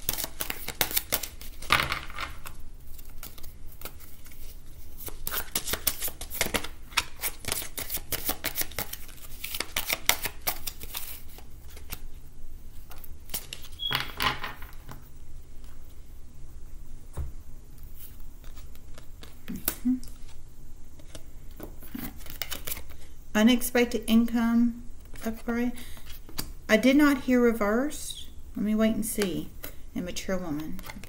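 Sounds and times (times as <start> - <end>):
cards being shuffled: 0.0 - 12.1, 12.7 - 13.9, 17.8 - 20.4, 21.0 - 23.0.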